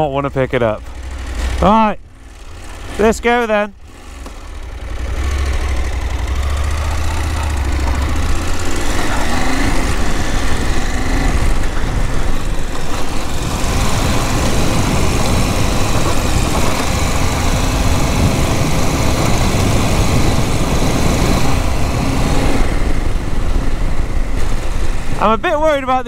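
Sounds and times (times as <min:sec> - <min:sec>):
motorcycle engine running: 0:00.0 - 0:25.8
wind noise on microphone: 0:09.6 - 0:25.2.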